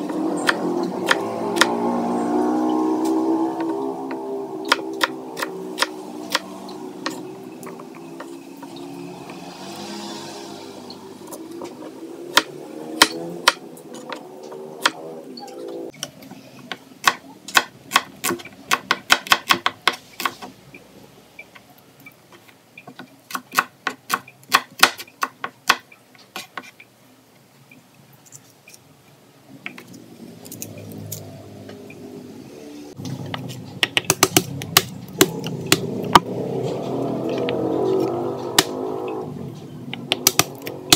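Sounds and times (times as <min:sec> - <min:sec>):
knife chopping on plastic board: 0:12.3 - 0:14.2, 0:17.0 - 0:20.5, 0:33.3 - 0:36.2, 0:40.0 - 0:40.9.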